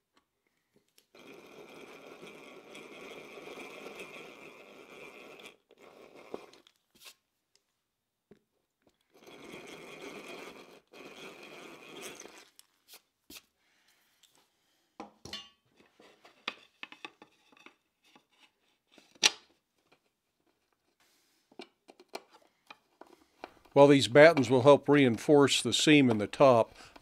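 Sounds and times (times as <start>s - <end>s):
tools and wood clicking and knocking: 15.0s - 20.9s, 21.5s - 27.0s.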